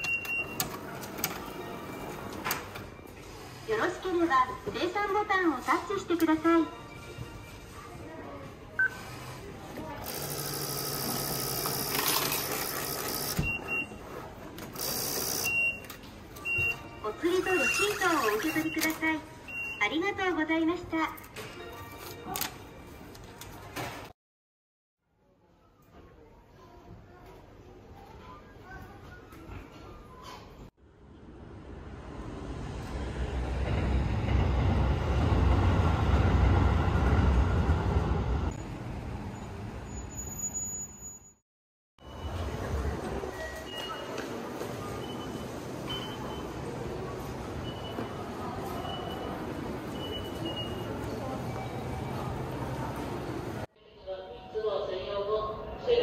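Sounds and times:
payment machine whirring: 0.0 - 3.7, 8.8 - 19.8.

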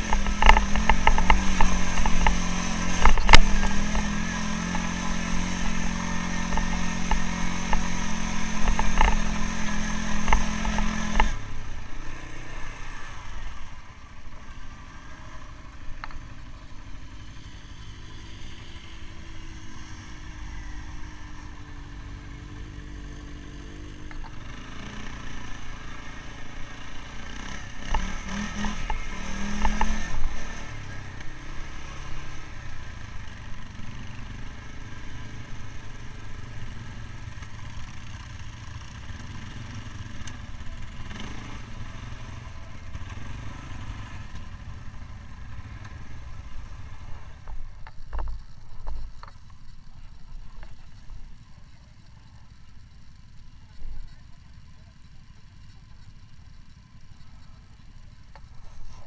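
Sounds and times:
knocks and rattles over rough ground: 0.0 - 11.5, 27.7 - 31.3, 47.2 - 59.0
quad bike engine running: 0.0 - 59.0.

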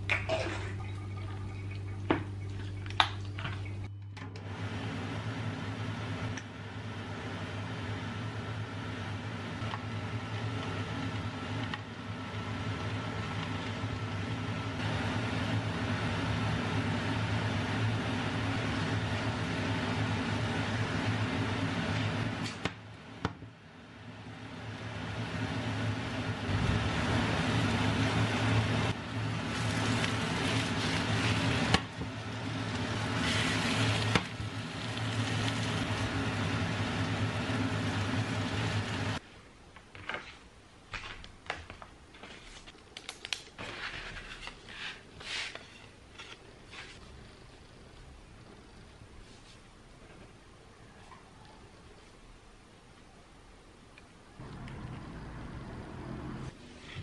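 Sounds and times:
electrical motor hum: 0.0 - 39.3, 51.4 - 57.0.

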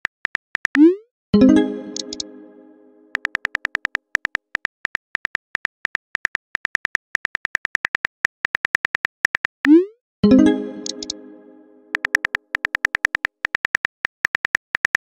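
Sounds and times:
notification tone: 0.8 - 3.2, 9.7 - 12.1
phone keyboard clicks: 11.9 - 15.0.

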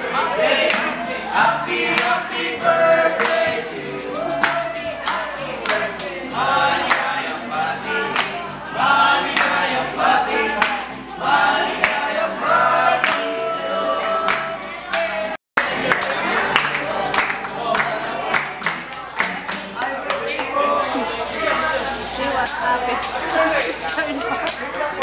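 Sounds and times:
tambourine: 0.0 - 19.7, 20.9 - 24.7
group singing a celebration song: 0.0 - 25.0
hand claps: 0.6 - 1.1, 1.9 - 2.2, 3.2 - 6.2, 6.8 - 7.3, 8.0 - 8.6, 9.3 - 9.7, 10.5 - 11.1, 11.8 - 12.2, 13.0 - 13.4, 14.2 - 25.0.

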